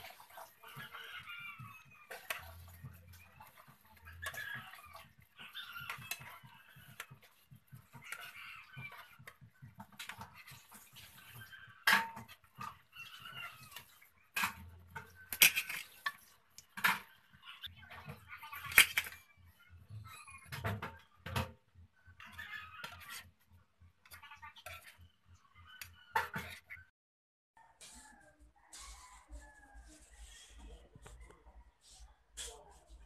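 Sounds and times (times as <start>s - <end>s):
spatula scraping a frying pan: 0.0s - 17.4s.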